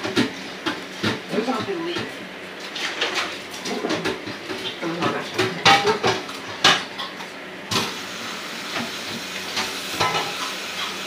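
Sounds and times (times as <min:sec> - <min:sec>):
food sizzling in a pot: 0:06.0 - 0:11.0.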